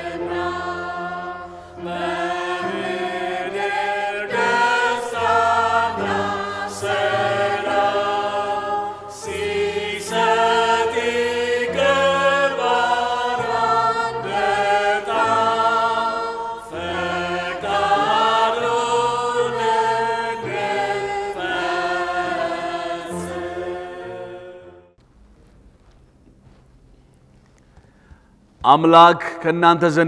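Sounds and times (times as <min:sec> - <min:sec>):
choir chanting in harmony: 0:00.0 - 0:25.0.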